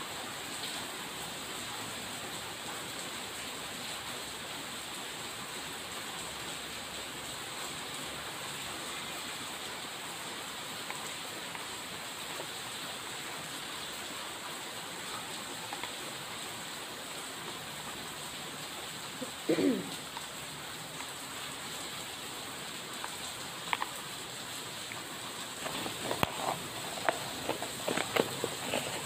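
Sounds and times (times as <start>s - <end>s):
rain falling: 0.0s - 29.0s
plastic bag crinkling: 25.5s - 29.0s.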